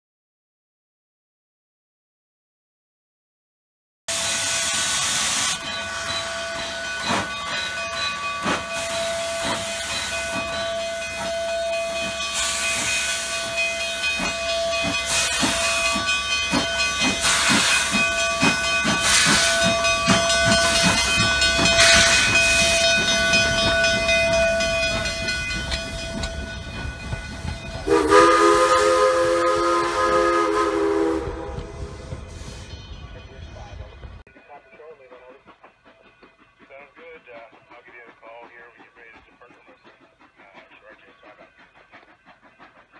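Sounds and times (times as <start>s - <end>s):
hissing steam: 4.1s - 7.4s, 8.1s - 24.0s
steam locomotive exhaust chuffs: 4.1s - 42.9s
steam whistle chord: 27.8s - 32.6s.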